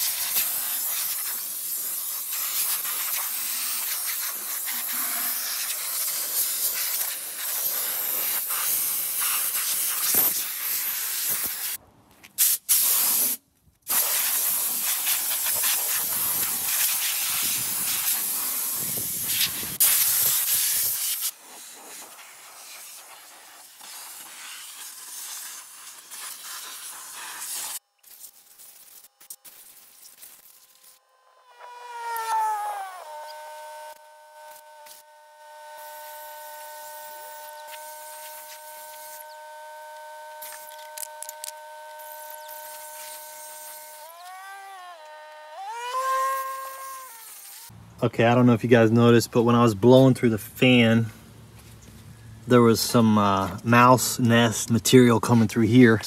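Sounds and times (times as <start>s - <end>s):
compressed air blow gun hissing: 0.0s - 11.8s, 12.4s - 30.4s, 31.9s - 44.6s.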